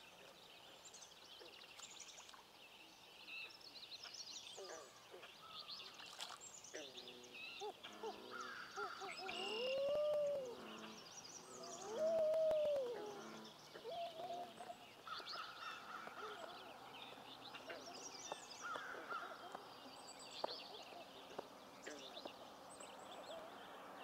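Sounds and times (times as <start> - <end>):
songbirds singing: 0.0 - 24.0
loon calling: 7.6 - 10.8, 11.7 - 14.8.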